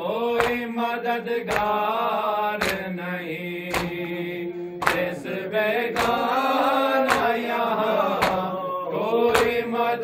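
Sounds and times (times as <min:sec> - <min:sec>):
men chanting in unison: 0:00.0 - 0:10.0
hands slapping chests: 0:00.4 - 0:00.7, 0:01.5 - 0:01.8, 0:02.6 - 0:02.9, 0:03.7 - 0:08.6, 0:09.2 - 0:09.7.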